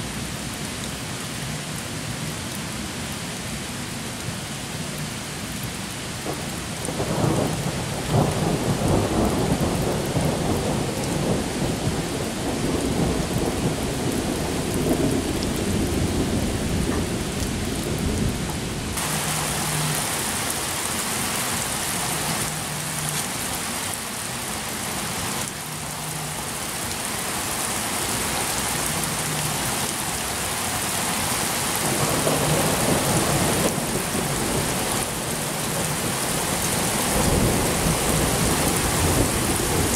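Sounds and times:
steady rain: 0.0 - 39.9
thunder rumbling: 6.3 - 20.5, 31.8 - 39.9.

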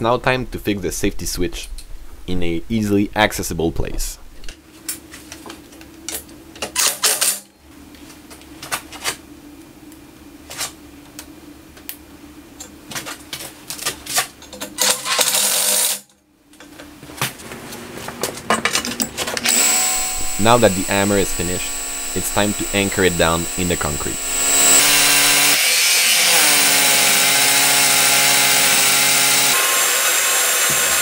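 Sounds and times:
steady low hum: 19.5 - 25.6.

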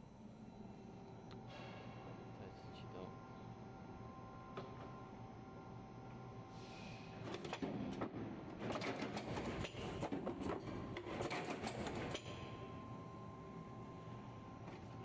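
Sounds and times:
machine clicking and clattering: 7.4 - 12.2.

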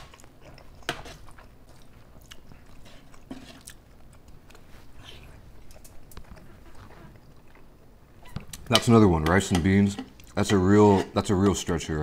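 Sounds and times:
person chewing food: 0.0 - 8.7.

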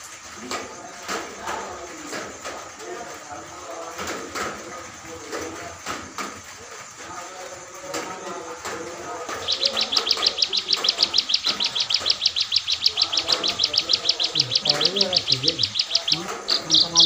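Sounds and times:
songbird fast trill: 8.8 - 17.0.

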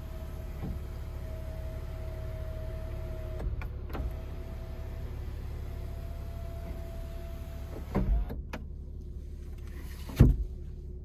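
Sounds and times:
thump: 10.1 - 10.5.

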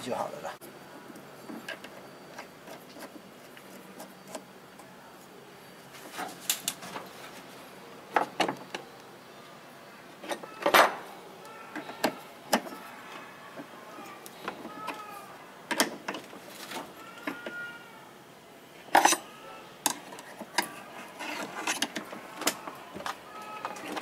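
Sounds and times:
metal parts clicking and knocking: 18.9 - 24.0.

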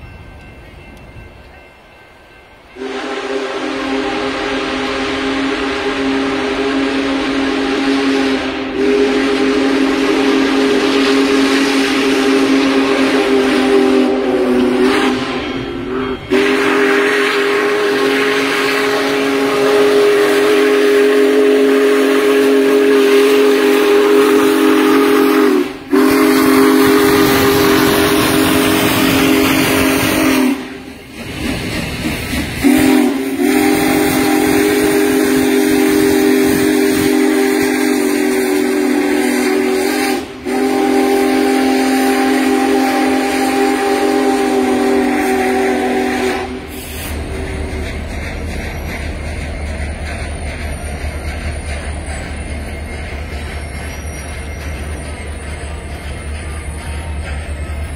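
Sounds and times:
steam whistle blowing chord: 2.7 - 31.0, 32.6 - 47.3
steam hissing: 2.8 - 57.9.

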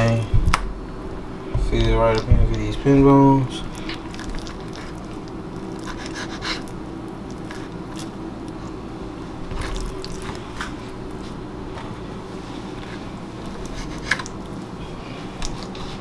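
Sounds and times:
steady low hum: 0.0 - 16.0
knife scraping fish fillet: 5.8 - 6.7, 13.7 - 14.3.

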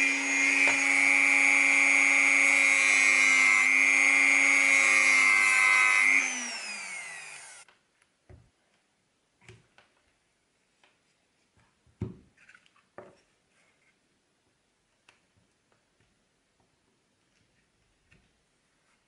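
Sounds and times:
rotary tool spinning down: 0.0 - 7.6
rotary tool whining: 0.0 - 7.7.

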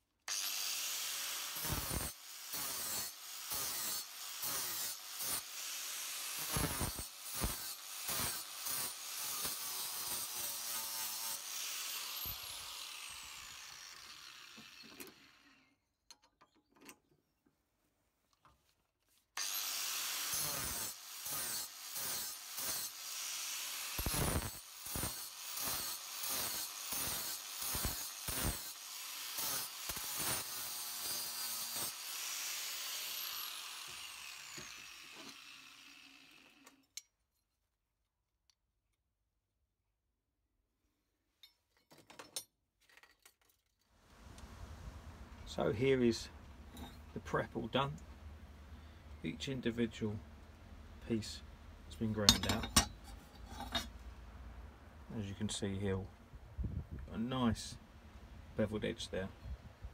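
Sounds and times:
angle grinder grinding metal: 0.3 - 15.8, 19.4 - 37.0, 46.7 - 48.0, 51.2 - 54.0.

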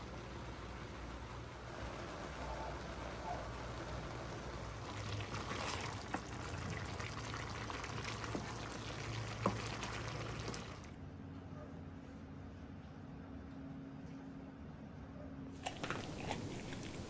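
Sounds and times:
food simmering in a pan: 0.0 - 11.0, 15.7 - 17.0.

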